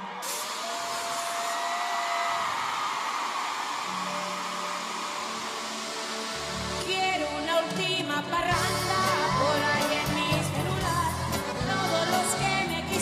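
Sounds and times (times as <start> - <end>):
gas jets hissing: 4.2 - 6.9.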